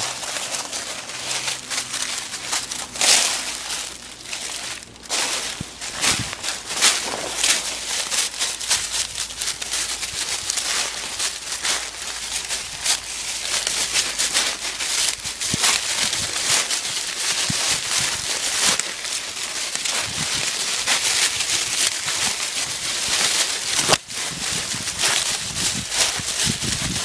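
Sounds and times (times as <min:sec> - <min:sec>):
dry leaves crackling underfoot: 0:00.0 - 0:27.0
sharp crack: 0:04.8 - 0:11.8.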